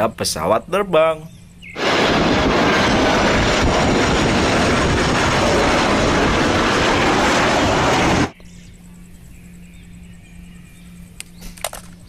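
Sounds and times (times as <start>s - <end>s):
jet engines rushing: 1.7s - 8.4s.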